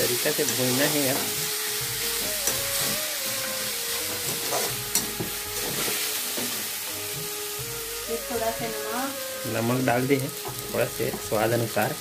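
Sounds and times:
noodles sizzling in a pan: 0.0s - 12.0s
spatula stirring and scraping: 0.5s - 6.7s.

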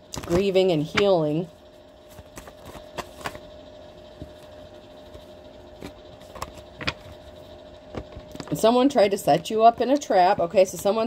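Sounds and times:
steady hum: 0.0s - 11.0s
cards tapping and clicking: 2.1s - 3.4s, 5.8s - 7.2s.

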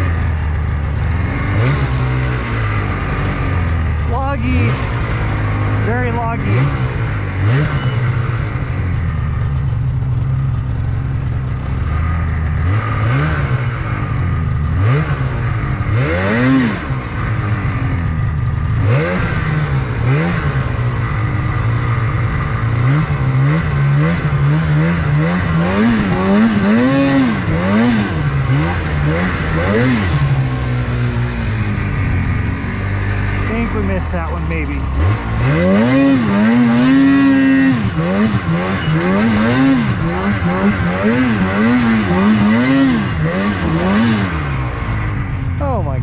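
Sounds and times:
snowmobile engine revving: 0.0s - 46.0s.

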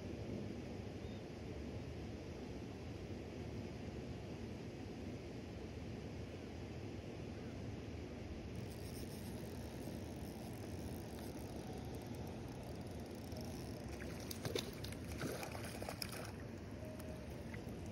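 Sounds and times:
splashy rustling: 13.9s - 16.5s.

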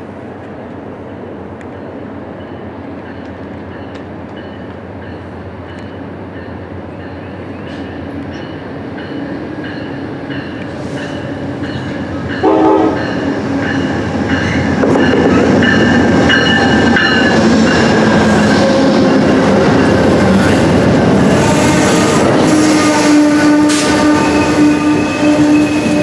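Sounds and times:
train cars rumbling by: 0.0s - 26.0s
locomotive bell ringing: 1.7s - 19.8s
train horn blast: 12.4s - 13.2s, 21.3s - 26.0s.

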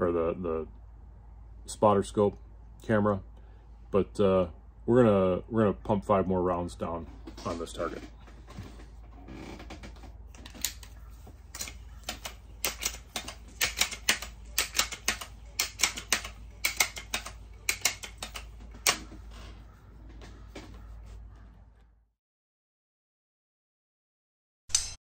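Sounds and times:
air rifle mechanical clicks: 10.3s - 19.4s.

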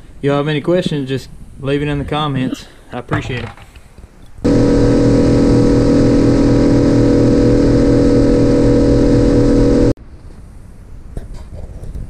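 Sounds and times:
outboard motor running: 4.5s - 9.9s.

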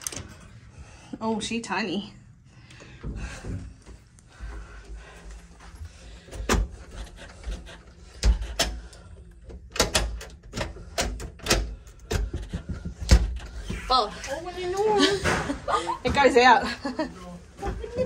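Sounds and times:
sharp clicks and knocks: 6.3s - 13.5s.

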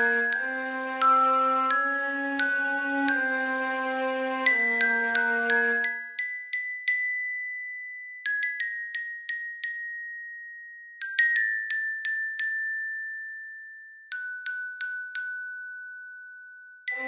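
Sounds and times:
bell-like mallet notes: 0.0s - 13.5s.

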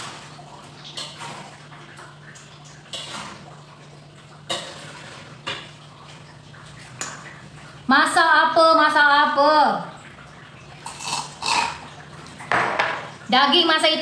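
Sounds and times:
metal utensil scraping a pan: 4.5s - 5.3s.

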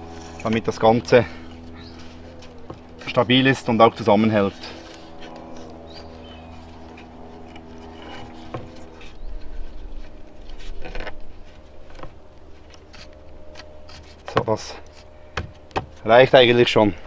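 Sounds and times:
faint steady hum: 0.0s - 17.0s
cord rustling and scraping: 4.2s - 15.2s.

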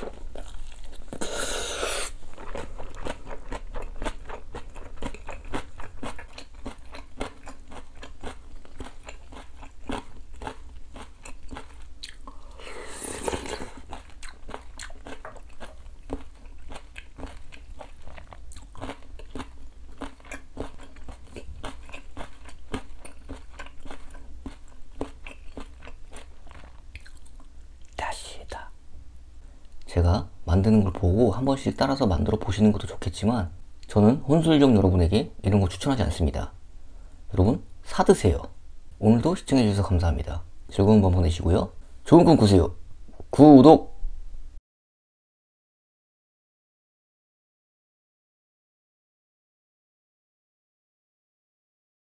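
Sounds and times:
person chewing crunchy food: 0.0s - 28.0s.

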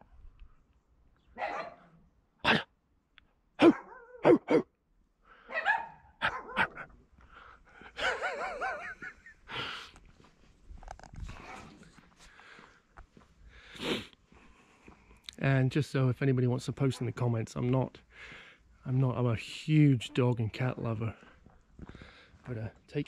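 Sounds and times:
dogs barking excitedly: 1.4s - 1.9s, 3.6s - 4.7s, 5.4s - 6.9s, 8.0s - 9.0s.

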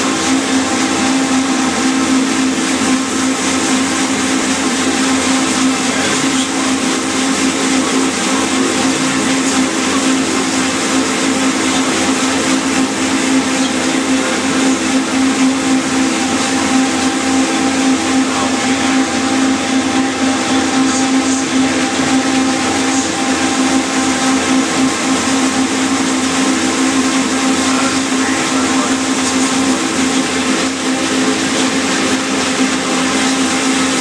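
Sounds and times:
mechanical hum with low pulsing: 0.0s - 34.0s
paddlewheel churning water: 0.0s - 34.0s.

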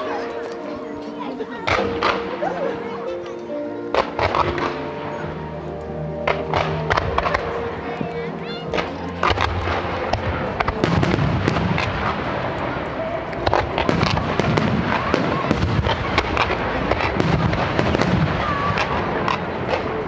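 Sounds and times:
fireworks bangs: 3.9s - 5.3s, 6.2s - 7.9s, 8.7s - 20.0s.

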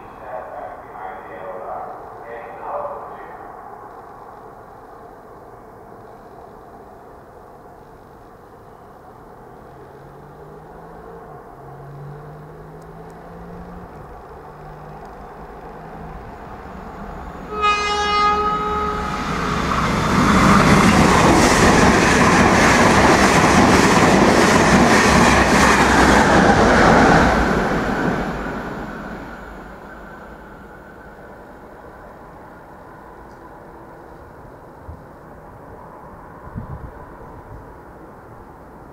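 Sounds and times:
train horn blast: 17.4s - 19.3s.

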